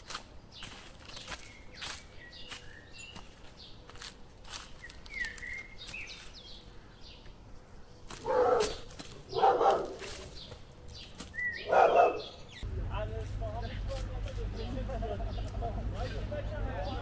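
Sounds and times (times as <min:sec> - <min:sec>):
small birds chirping: 0:00.0 - 0:17.0
dog barking: 0:08.2 - 0:10.2, 0:11.6 - 0:12.4.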